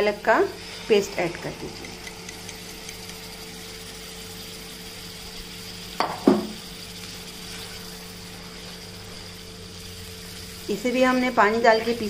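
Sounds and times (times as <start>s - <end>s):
sharp knocks against pan: 6.0s - 6.6s.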